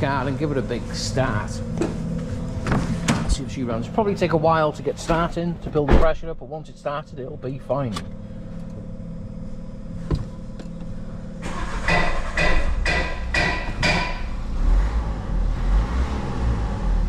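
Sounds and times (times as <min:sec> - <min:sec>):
diesel engine idling: 0:00.0 - 0:14.6
starter motor cranking: 0:11.4 - 0:12.8.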